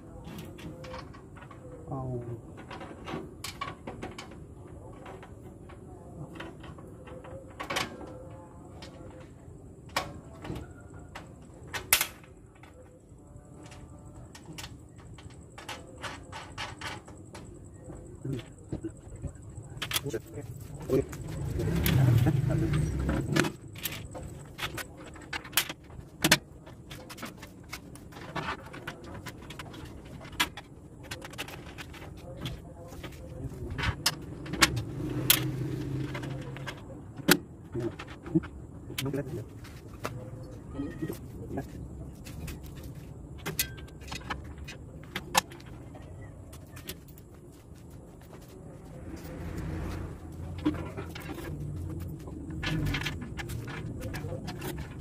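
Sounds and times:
steady low hum: 8.1 - 55.0
bolts clinking against sheet steel: 43.4 - 45.7.

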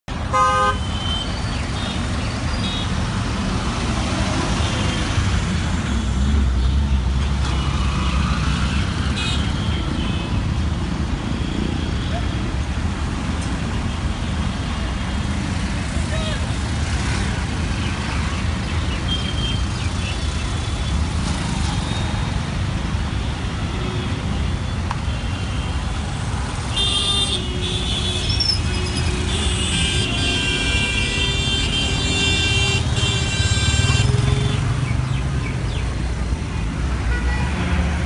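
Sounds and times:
traffic engines rumbling: 0.0 - 38.0
vehicle horns: 0.2 - 3.0, 8.6 - 10.4, 26.6 - 34.7, 37.0 - 37.9.

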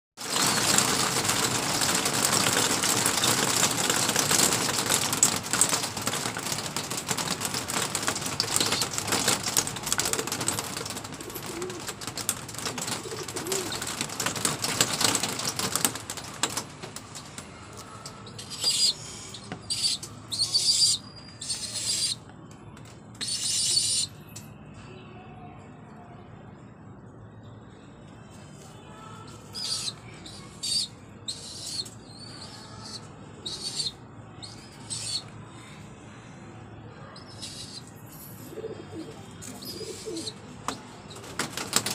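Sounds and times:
pigeon wings flapping: 0.2 - 17.4, 39.0 - 41.9.

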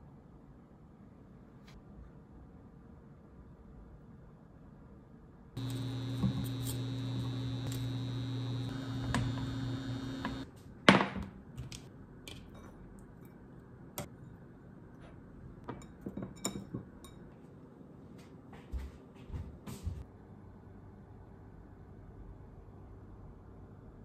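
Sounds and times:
steady hum: 5.6 - 10.5.

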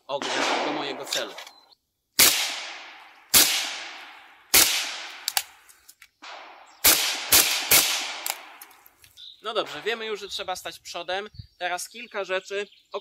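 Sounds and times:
rifle shots with echo: 0.1 - 1.4, 2.2 - 5.6, 6.2 - 8.8, 9.5 - 10.2.

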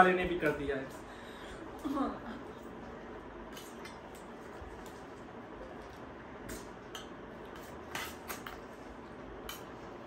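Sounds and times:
cutlery clinking on steel plate: 6.9 - 8.6.

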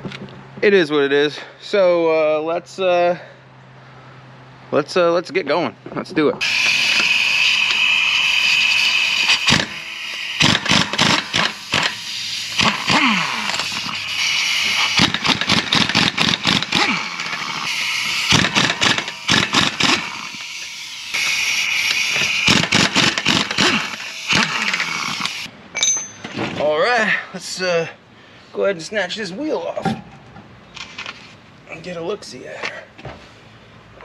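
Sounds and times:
pneumatic impact wrench: 6.4 - 25.5.

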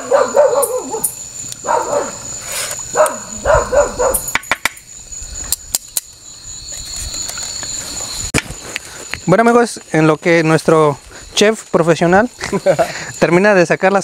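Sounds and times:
dog yelping and barking: 0.0 - 2.3, 2.9 - 4.3.

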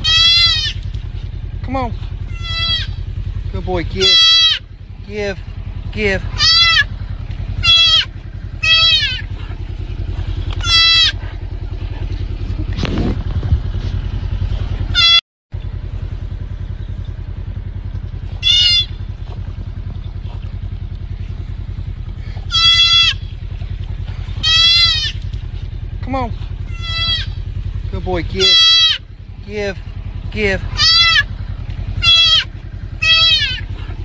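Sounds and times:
deer fawn bleating: 0.0 - 0.9, 2.2 - 3.1, 3.8 - 5.3, 6.1 - 9.4, 10.5 - 11.3, 14.9 - 15.2, 18.3 - 19.1, 22.3 - 23.6, 24.2 - 25.4, 26.6 - 27.6, 28.2 - 29.2, 30.3 - 33.8
steady low rumble: 0.0 - 34.0.

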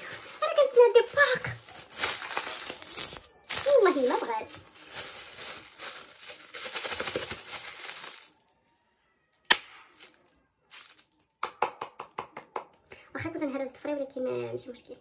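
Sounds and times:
plastic packaging crinkling: 0.0 - 11.4.

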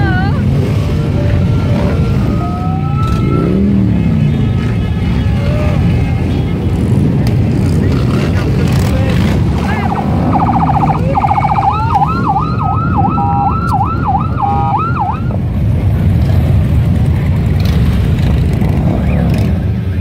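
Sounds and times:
siren wailing: 0.9 - 3.9, 9.7 - 15.4
motorcycles rumbling past: 6.5 - 20.0.

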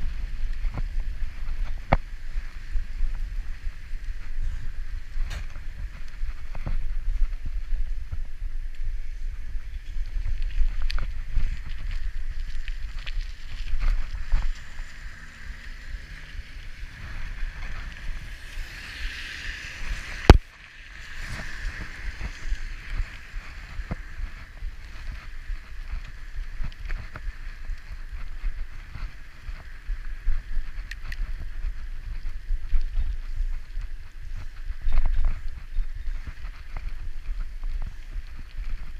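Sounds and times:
bike clicks and rattles: 0.0 - 38.9
low rumble: 0.0 - 38.9
wind buffeting microphone: 0.0 - 38.9
tyres hissing on wet road: 14.1 - 24.9.

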